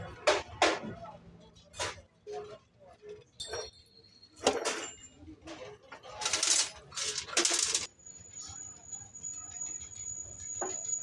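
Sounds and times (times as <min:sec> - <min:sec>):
metal parts clinking: 0:06.0 - 0:07.9.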